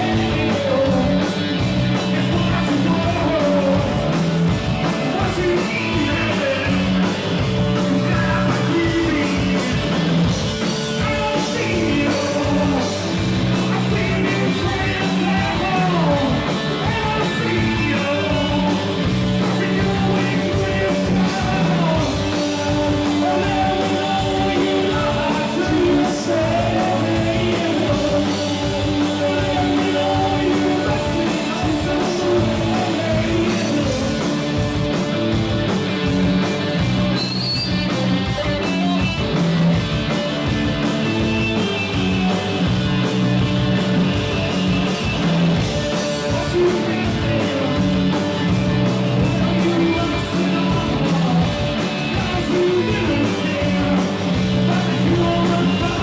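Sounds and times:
person singing: 0:00.0 - 0:04.2, 0:05.0 - 0:07.1, 0:07.7 - 0:10.0, 0:10.9 - 0:34.5, 0:45.8 - 0:56.0
rock band playing: 0:00.0 - 0:56.0.

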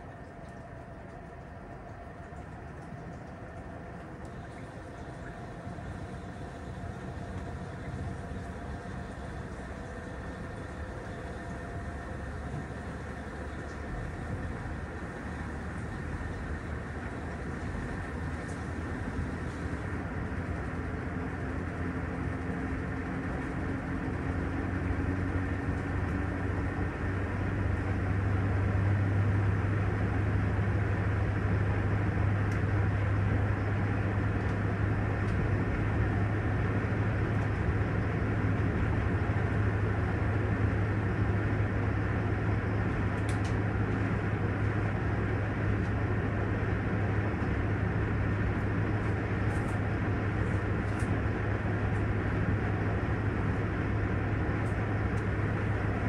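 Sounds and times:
washing machine tub spinning: 0:00.0 - 0:11.0.

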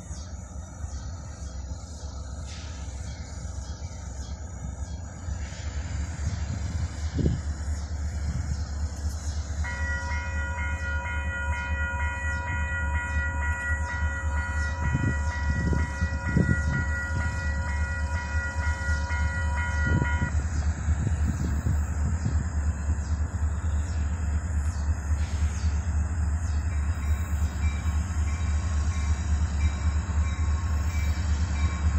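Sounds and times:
crossing warning bell ringing: 0:08.8 - 0:20.4, 0:25.4 - 0:31.9.

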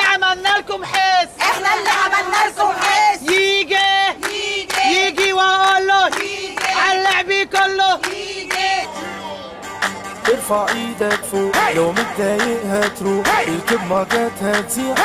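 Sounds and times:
hand clapping: 0:04.2 - 0:08.8.

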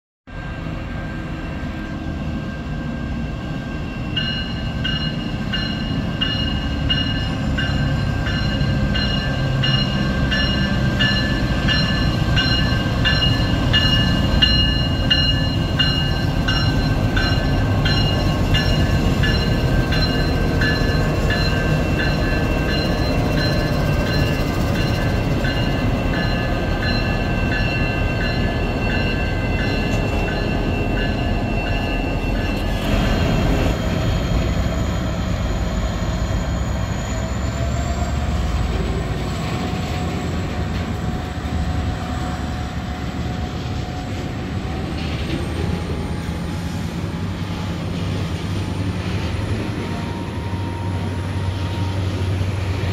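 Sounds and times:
high ringing squeal: 0:00.3 - 0:38.6.

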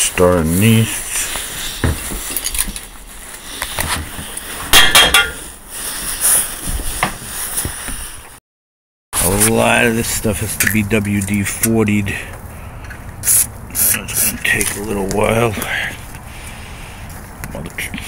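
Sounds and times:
pot and utensils clattering: 0:04.7 - 0:05.5.

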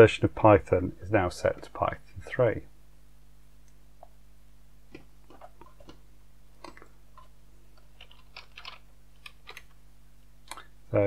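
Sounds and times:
computer mouse clicks: 0:06.6 - 0:09.8.

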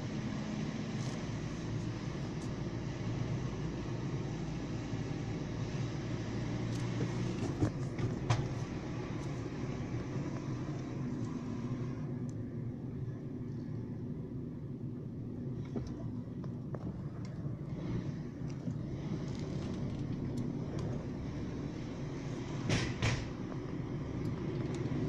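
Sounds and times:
car engine and road hum: 0:00.0 - 0:25.0.

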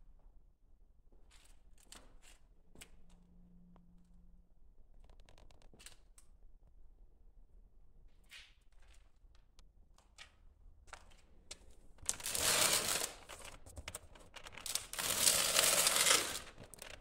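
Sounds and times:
cardboard box rustling and scraping: 0:14.7 - 0:16.6.

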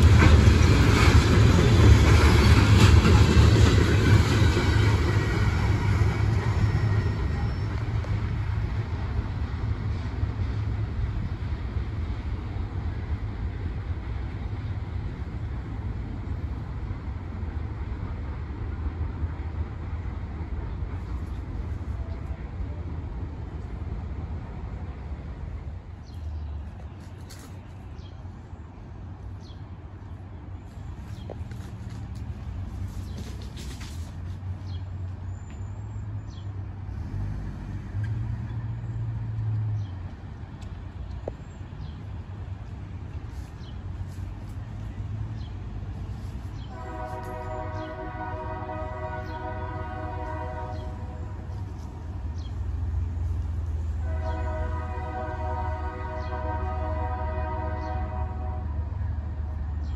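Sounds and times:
freight train rumbling: 0:00.0 - 0:59.9.

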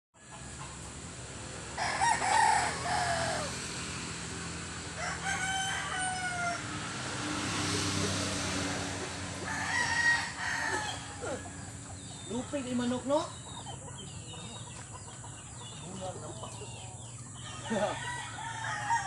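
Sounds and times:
rooster crowing: 0:01.7 - 0:03.8, 0:04.9 - 0:06.8, 0:09.4 - 0:12.2, 0:16.7 - 0:19.0.

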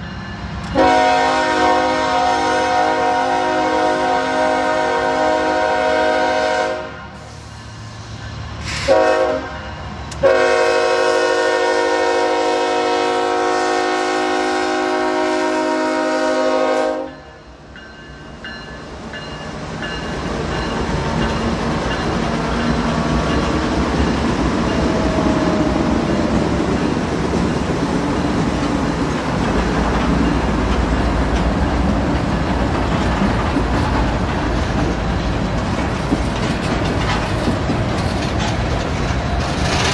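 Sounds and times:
train rumbling past: 0:00.0 - 0:39.9
locomotive horn blasts: 0:00.7 - 0:07.4, 0:08.8 - 0:17.3.

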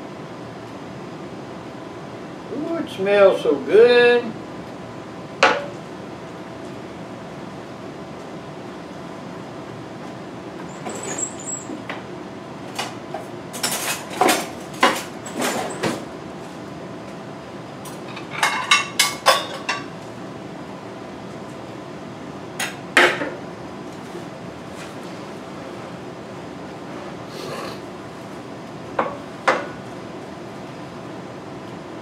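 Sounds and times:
dishes and utensils clinking: 0:18.0 - 0:19.9.

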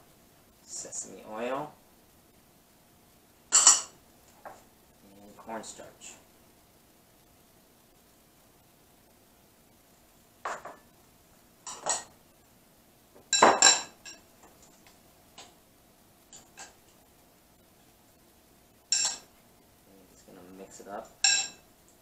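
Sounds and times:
metal utensil clinking glass bowl: 0:03.5 - 0:03.9, 0:11.7 - 0:12.1, 0:13.3 - 0:14.2, 0:18.9 - 0:19.3, 0:21.2 - 0:21.6.

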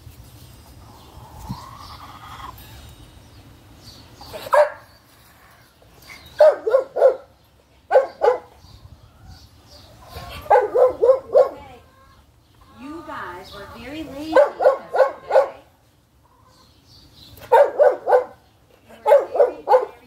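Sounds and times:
dog barking: 0:04.4 - 0:04.9, 0:06.4 - 0:07.3, 0:07.9 - 0:08.5, 0:10.4 - 0:11.7, 0:14.3 - 0:15.6, 0:17.5 - 0:18.4, 0:19.0 - 0:20.0.

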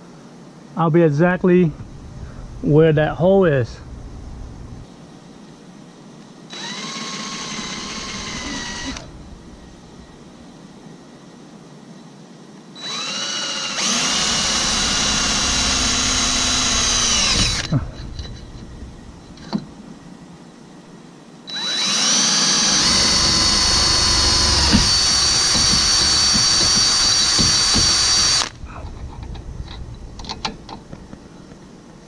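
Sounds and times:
cordless drill boring metal: 0:06.5 - 0:09.1, 0:12.8 - 0:18.4, 0:21.5 - 0:28.6.

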